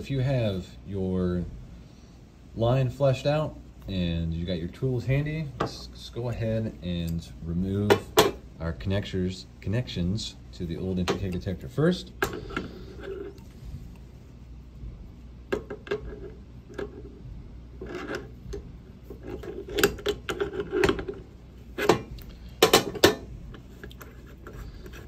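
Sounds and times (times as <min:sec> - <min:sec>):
metal clicks and rubbing: 0:15.5 - 0:25.0.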